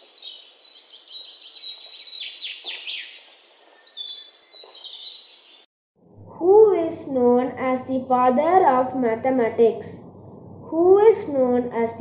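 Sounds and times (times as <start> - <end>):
birds chirping and twittering: 0.0 - 5.7
downward-sweeping bird calls: 0.0 - 5.7.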